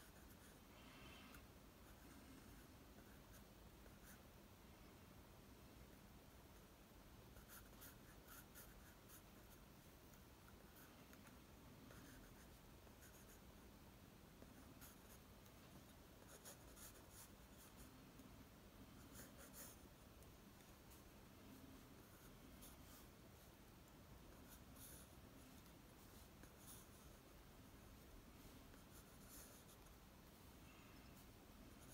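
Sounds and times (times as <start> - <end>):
pencil scratching on paper: 0.0 - 0.6, 7.3 - 9.7, 10.5 - 13.4, 14.4 - 17.9, 19.0 - 19.9, 24.2 - 27.3, 28.0 - 30.0, 31.0 - 31.9.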